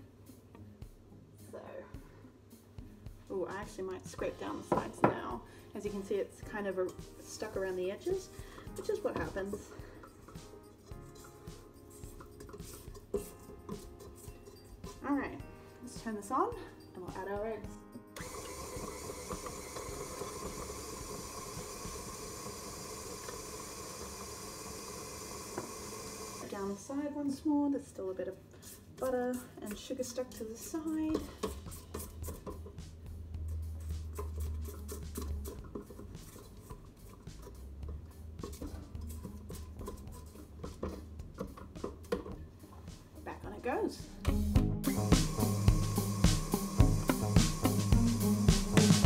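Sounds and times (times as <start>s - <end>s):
spatula scraping metal bowl: 5.9s - 15.0s, 28.6s - 32.8s, 33.5s - 42.2s
stand mixer motor hum: 18.2s - 26.5s, 44.9s - 49.0s.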